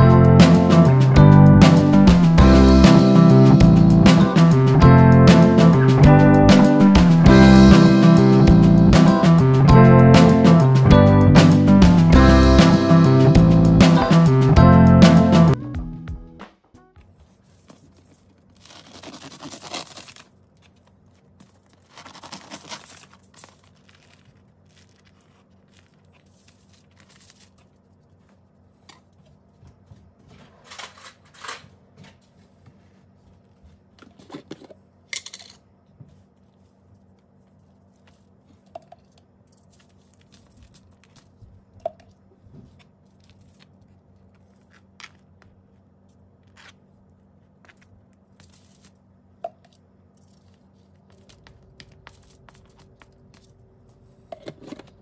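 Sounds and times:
aluminium foil crinkling: 17.4 - 29.2, 39.4 - 41.7, 43.0 - 46.8, 47.6 - 49.0, 50.1 - 53.7.

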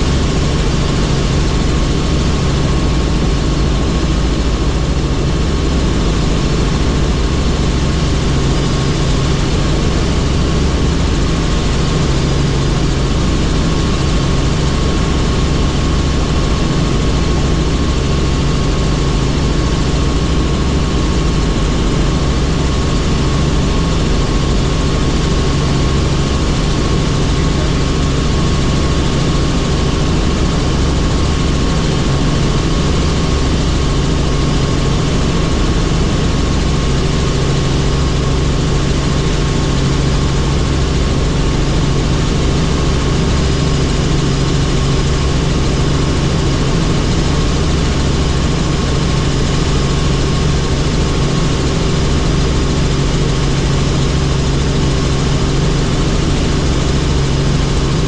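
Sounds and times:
helicopter rotor drone: 0.0 - 58.0
high turbine whine: 0.0 - 58.0.

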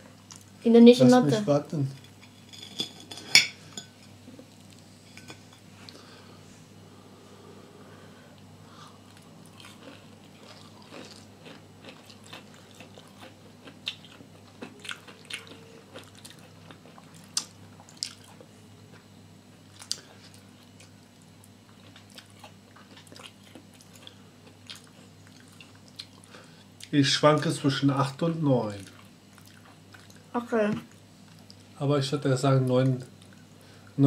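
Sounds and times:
faint low hum: 0.0 - 34.0
people chewing crispy food: 8.3 - 27.0, 28.7 - 31.8.

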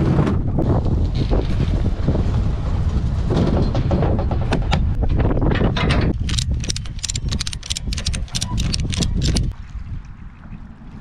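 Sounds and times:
ratchet strap clicking: 6.2 - 9.5.

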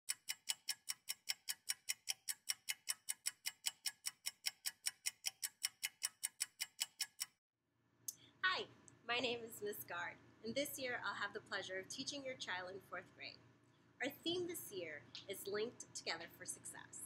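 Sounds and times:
rapid clock-like ticking: 0.1 - 7.4.

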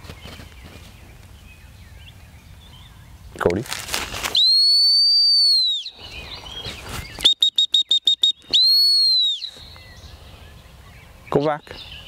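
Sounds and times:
whistle short toots: 4.3 - 5.9, 7.2 - 9.6
whistle long blasts: 4.4 - 6.0, 7.2 - 9.6.

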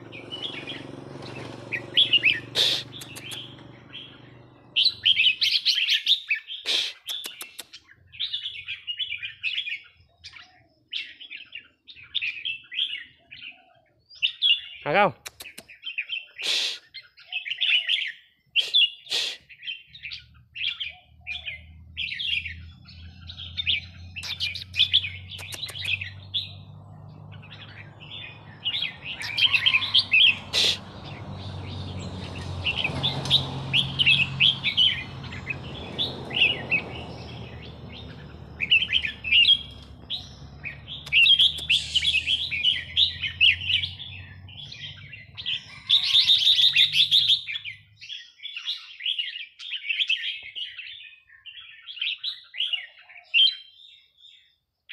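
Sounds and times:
birds warbling: 0.0 - 54.6
sharp clicks: 2.6 - 3.7, 7.1 - 7.8, 15.2 - 15.7, 25.3 - 26.0, 40.9 - 42.2.

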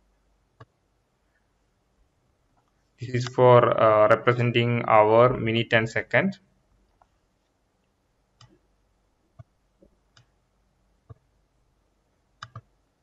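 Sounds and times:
computer mouse clicks: 10.1 - 10.3, 12.4 - 12.7.

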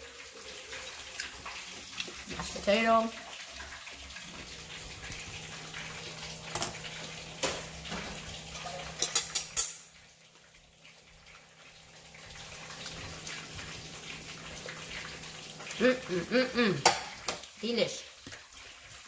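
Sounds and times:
plate and cutlery clinking: 8.6 - 9.9.

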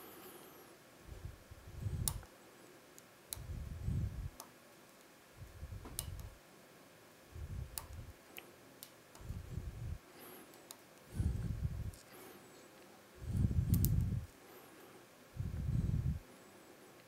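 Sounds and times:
low rumbling: 3.4 - 4.3, 9.2 - 10.0, 11.2 - 12.0, 13.2 - 14.3, 15.4 - 16.2.

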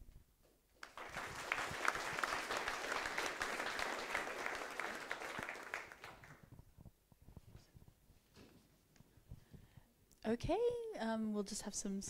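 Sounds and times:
audience applauding: 0.8 - 6.5.

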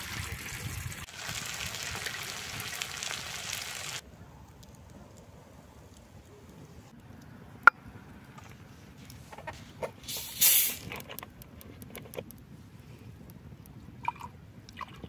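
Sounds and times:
campfire crackling: 0.0 - 9.4, 10.0 - 14.8
loud hiss: 10.1 - 10.8.

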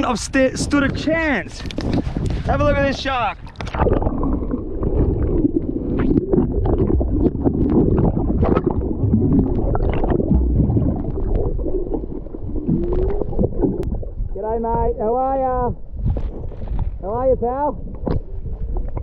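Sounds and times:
underwater rumble and gurgle: 0.5 - 19.0
small underwater clicks and knocks: 0.8 - 2.5, 3.4 - 4.1, 17.9 - 19.0.

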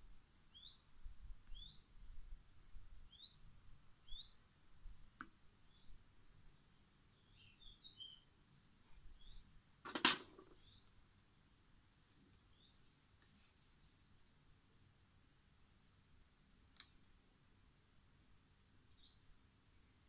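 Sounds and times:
faint bird chirps: 0.4 - 2.3, 2.9 - 11.3, 12.1 - 14.2, 18.8 - 20.0.

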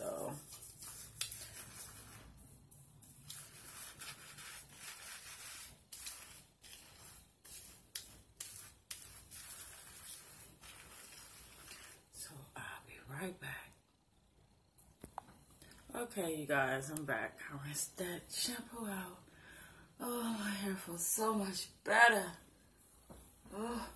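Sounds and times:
hands scrubbing lathered hair: 0.0 - 12.1.

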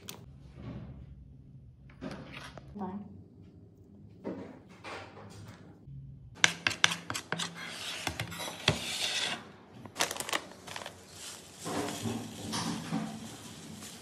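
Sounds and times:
spoon scraping ceramic plate: 6.4 - 9.4.

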